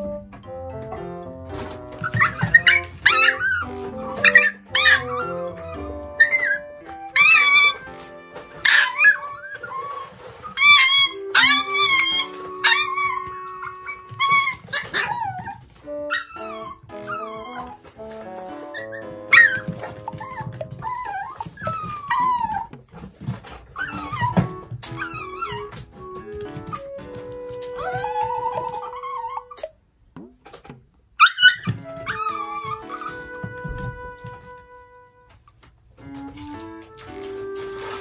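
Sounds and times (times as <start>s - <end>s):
puppy yelping shrilly: 2.0s - 5.6s, 6.2s - 17.9s, 18.7s - 22.8s, 23.8s - 25.8s, 27.7s - 29.8s, 31.2s - 33.3s.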